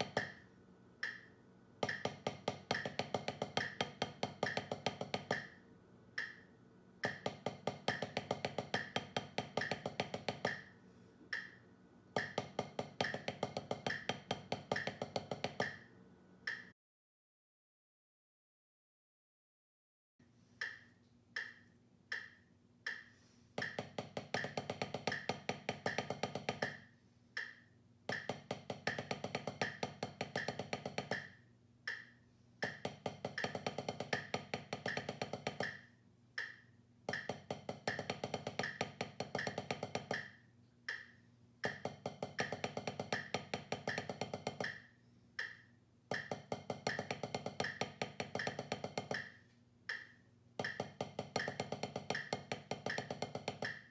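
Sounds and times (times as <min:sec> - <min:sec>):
drumsticks on practice pad: 0:00.0 - 0:00.4, 0:01.0 - 0:05.6, 0:06.2 - 0:11.6, 0:12.2 - 0:16.8, 0:20.6 - 0:53.9
metronome clicking: 0:01.0 - 0:03.0, 0:06.2 - 0:06.4, 0:11.3 - 0:11.6, 0:16.5 - 0:16.7, 0:20.6 - 0:23.8, 0:27.4 - 0:31.3, 0:31.9 - 0:35.8, 0:36.4 - 0:44.8, 0:45.4 - 0:49.3, 0:49.9 - 0:53.9.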